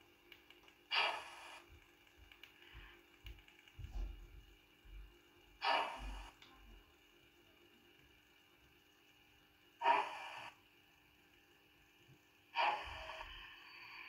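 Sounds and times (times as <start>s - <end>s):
faint steady hum: 0.0s - 14.0s
model locomotive hisses: 0.9s - 1.6s, 5.6s - 6.3s, 9.8s - 10.6s, 12.6s - 14.0s.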